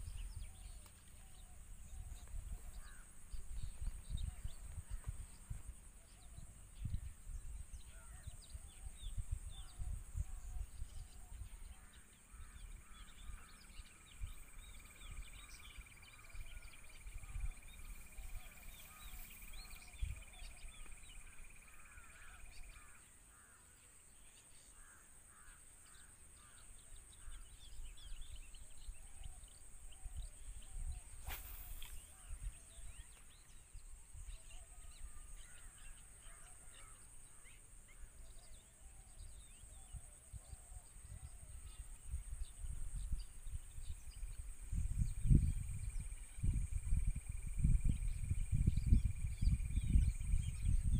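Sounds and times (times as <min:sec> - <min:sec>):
wind rumbling on microphone: 0:00.0 - 0:22.9, 0:27.2 - 0:36.0, 0:38.0 - 0:50.9
birds chirping: 0:00.0 - 0:24.8, 0:25.4 - 0:50.9
steady high hiss: 0:31.0 - 0:32.5.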